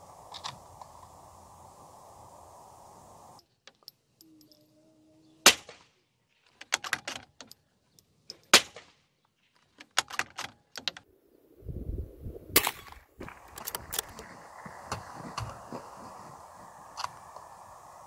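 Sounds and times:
low rumble and hiss: 0:00.0 - 0:03.4
small metallic clicks: 0:03.4 - 0:04.7, 0:06.3 - 0:08.6, 0:12.6 - 0:14.2.

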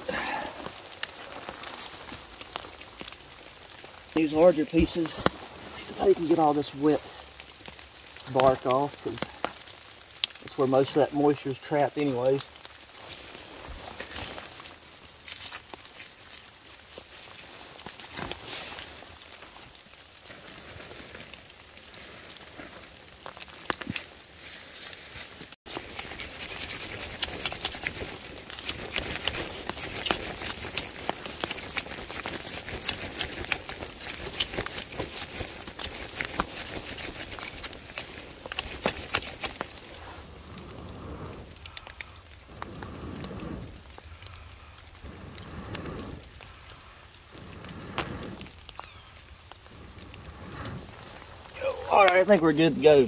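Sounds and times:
campfire crackling: 0:00.0 - 0:53.0
light rain pattering: 0:00.0 - 0:53.0
breaths blown into fire: 0:25.7 - 0:53.0.

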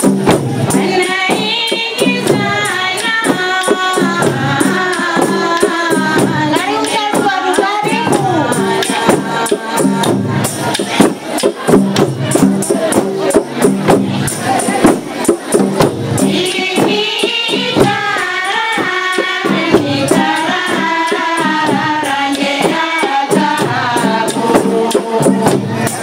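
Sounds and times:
percussion beat with jingling: 0:00.0 - 0:26.0
woman singing into a microphone: 0:00.7 - 0:10.5, 0:16.2 - 0:25.8.

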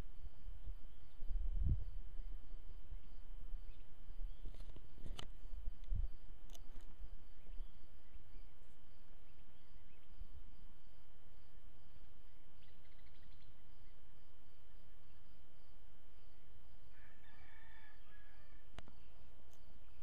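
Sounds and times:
faint bird chirps: 0:00.5 - 0:05.2, 0:05.9 - 0:10.5, 0:11.5 - 0:15.3.

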